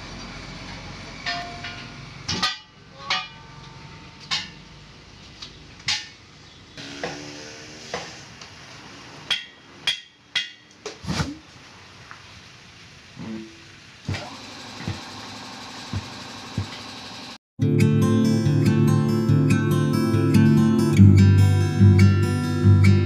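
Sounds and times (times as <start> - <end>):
hammer clanking on steel wheel: 1.2 - 4.7.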